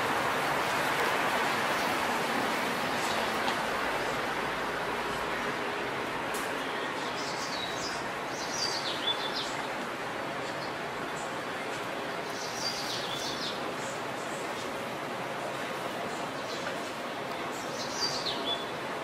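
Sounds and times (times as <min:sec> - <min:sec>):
outdoor street noise: 0:00.0 - 0:19.0
small birds chirping: 0:06.6 - 0:09.8, 0:10.4 - 0:14.8, 0:16.1 - 0:18.8.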